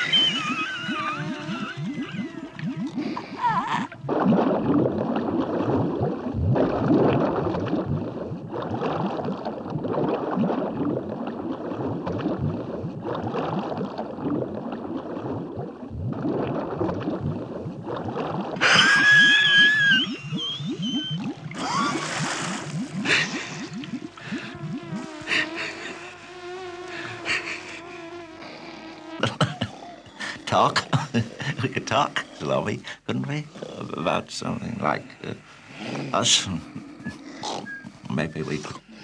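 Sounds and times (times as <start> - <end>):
cartoon water gurgling: 0.0 - 39.0.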